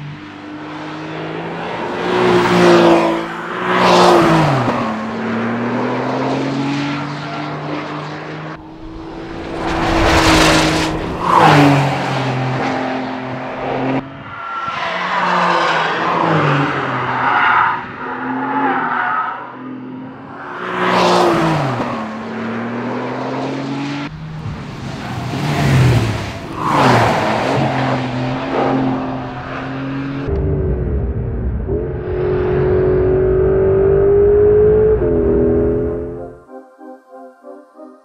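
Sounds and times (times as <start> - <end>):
race car engine passing: 0.0 - 19.0, 19.6 - 31.0.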